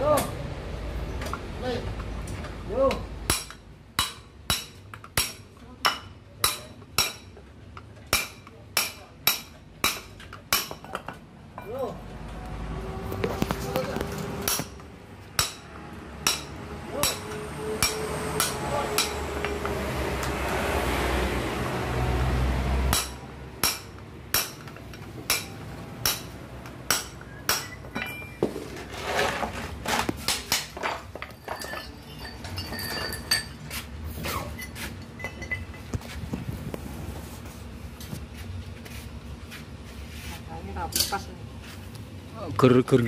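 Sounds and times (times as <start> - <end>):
hammer striking metal punch: 3.3 - 7.3, 8.1 - 11.1, 14.4 - 14.8, 15.4 - 19.2, 22.9 - 28.4
metallic clinks of tools: 30.9 - 33.7, 34.5 - 35.9.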